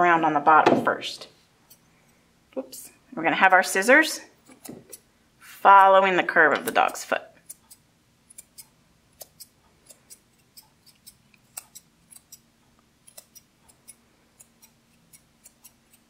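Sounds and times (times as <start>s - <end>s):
scissors snipping fur: 4.4s - 5.0s, 5.8s - 12.4s, 13.0s - 16.0s.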